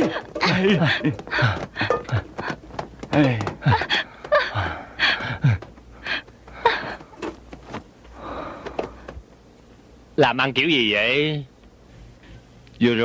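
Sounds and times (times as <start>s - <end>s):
people gasping and crying out: 0.0s - 7.2s.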